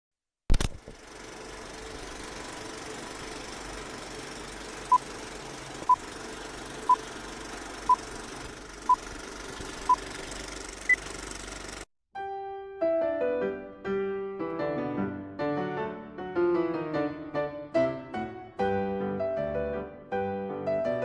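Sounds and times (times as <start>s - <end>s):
film projector whirring: 0.6s - 11.9s
piano music: 12.2s - 21.0s.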